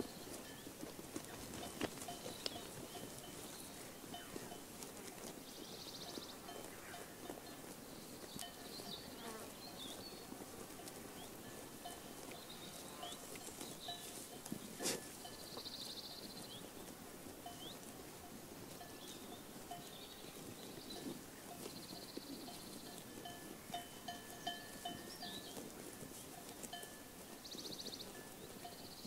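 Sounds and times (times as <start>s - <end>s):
birds chirping and trilling: 5.4s - 10.4s, 11.2s - 16.8s, 18.9s - 23.0s, 23.7s - 25.6s.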